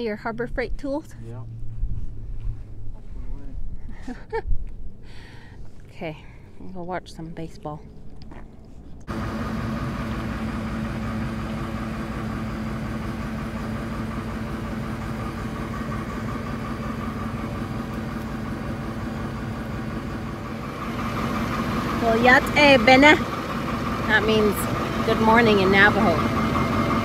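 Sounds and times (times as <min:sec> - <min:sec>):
forklift engine idling: 0:09.0 - 0:27.0.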